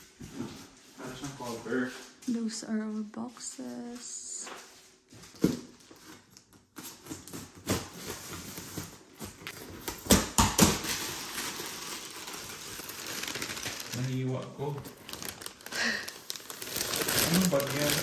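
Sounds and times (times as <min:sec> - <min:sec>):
packing paper rustling: 0:06.0 - 0:18.0
packing tape tearing: 0:06.4 - 0:18.0.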